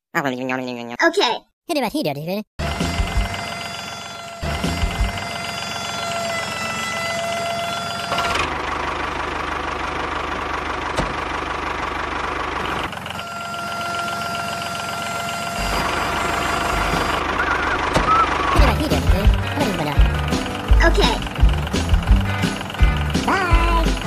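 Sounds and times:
electric gear motor whining: 2.6s - 24.0s.

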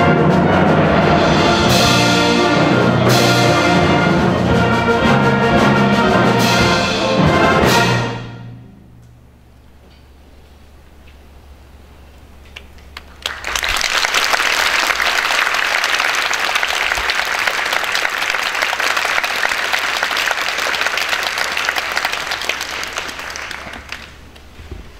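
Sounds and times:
audience applauding: 12.6s - 24.5s.

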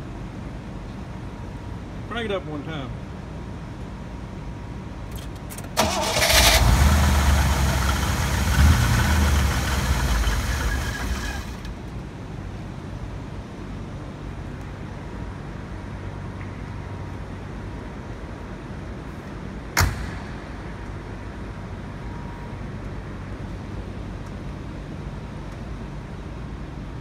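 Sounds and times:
car engine idling: 5.8s - 11.9s
sharp knock: 19.8s - 20.8s.

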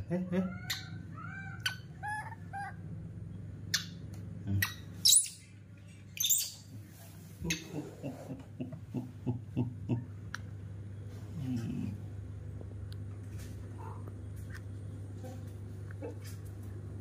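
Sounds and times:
baby monkey screaming: 0.3s - 2.8s, 4.6s - 5.5s.

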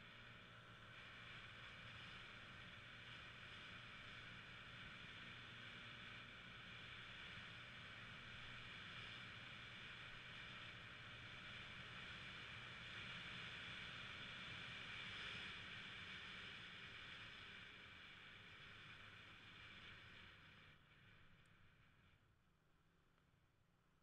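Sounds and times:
wind and road noise: 0.0s - 21.9s.

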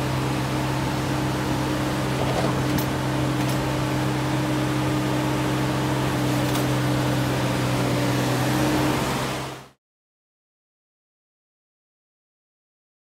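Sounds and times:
street sweeper running: 0.0s - 9.8s.

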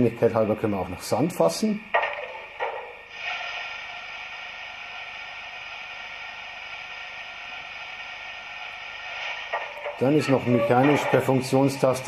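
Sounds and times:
rushing hiss from loudspeaker: 3.1s - 12.0s.

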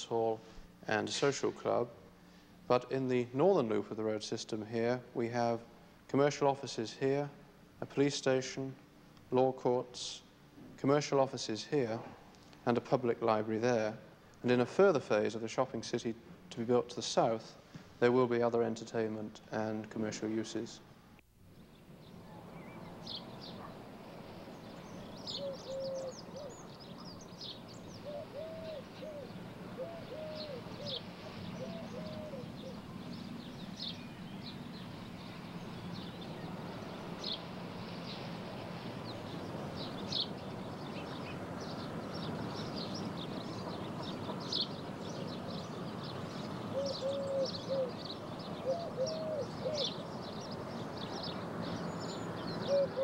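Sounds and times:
steady background hiss: 0.0s - 53.0s
birds chirping: 21.5s - 53.0s
low cooing bird call: 24.6s - 37.4s, 39.0s - 53.0s.

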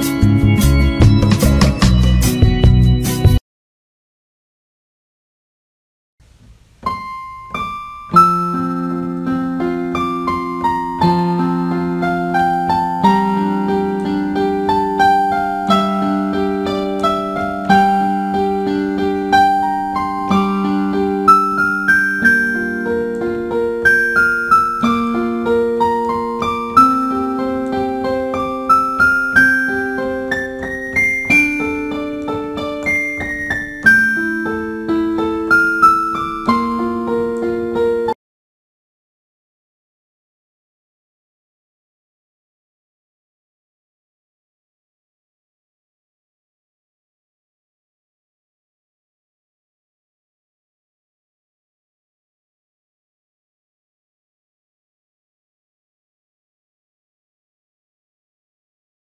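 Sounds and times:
gentle piano music: 6.8s - 38.2s.

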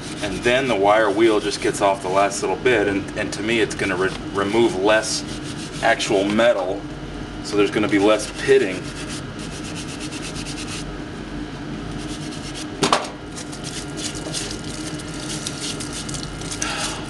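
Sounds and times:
hand brush scrubbing metal: 0.0s - 2.4s, 4.4s - 6.3s, 7.5s - 10.9s, 12.0s - 12.7s, 13.4s - 17.0s.

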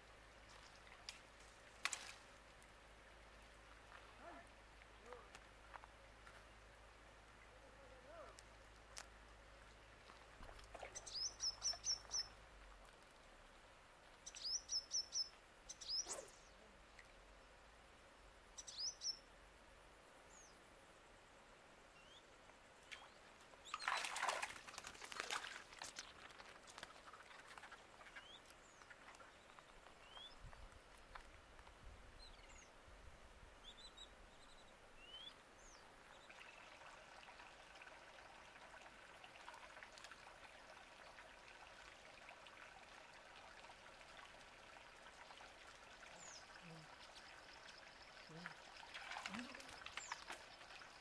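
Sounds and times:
short bird chirps: 14.3s - 16.5s
fish splashing in water: 23.7s - 27.7s.

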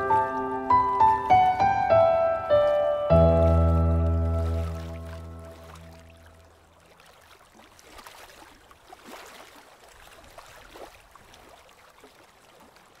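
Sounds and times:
faint moving water: 0.0s - 13.0s
water splashes and drips: 0.0s - 13.0s.

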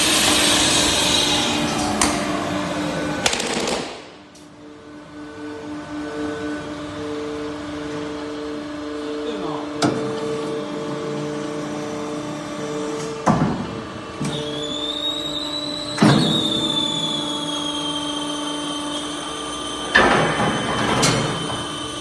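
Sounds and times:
high falling whine: 0.0s - 9.2s
machine humming: 0.0s - 22.0s.

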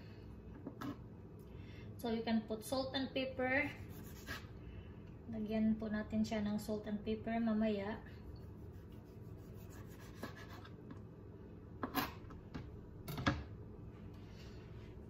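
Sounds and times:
knife scraping cutting board: 3.8s - 4.5s, 8.7s - 10.8s, 11.8s - 12.3s
knife slicing pickle: 3.8s - 4.5s, 8.7s - 10.7s.

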